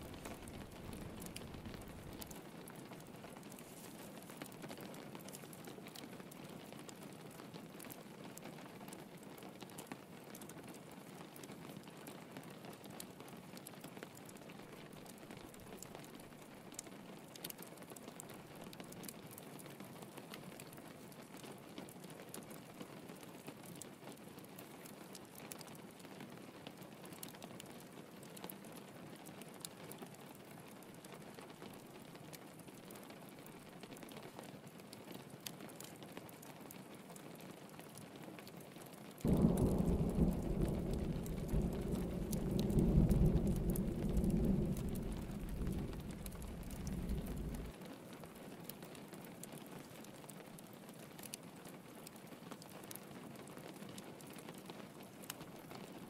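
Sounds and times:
wood fire crackling: 0.0 - 8.4, 14.1 - 19.4, 39.2 - 47.8
rain pattering on a window: 0.0 - 56.0.

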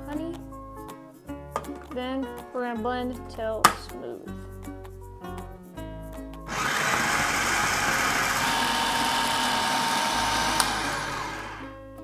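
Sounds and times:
food processor motor whining: 6.5 - 11.7
food processor switch click: 9.3 - 11.6.

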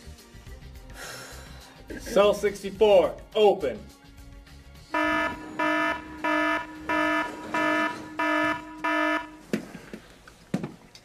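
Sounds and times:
electronic door buzzer beeping: 5.0 - 9.4.

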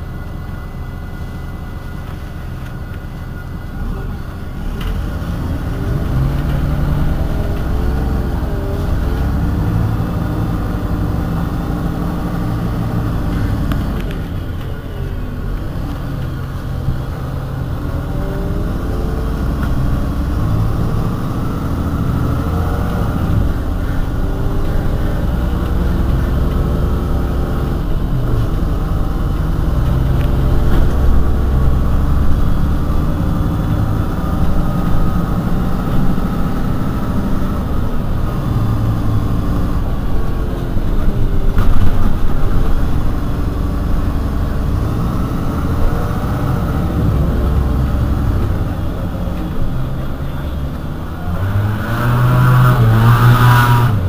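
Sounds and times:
bus diesel engine running: 0.0 - 54.0.

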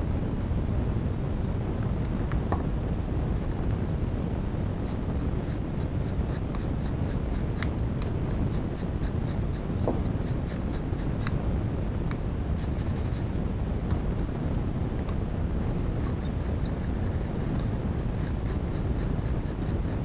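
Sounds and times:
toothbrush scratching strokes: 4.8 - 11.3, 12.6 - 13.4, 15.6 - 20.0.

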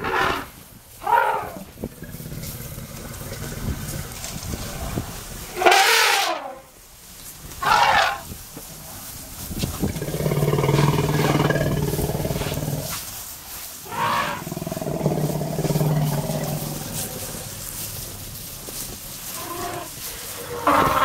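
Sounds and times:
elephant trumpet blasts: 5.5 - 6.6
elephant deep roars: 9.8 - 12.9, 13.9 - 17.6.

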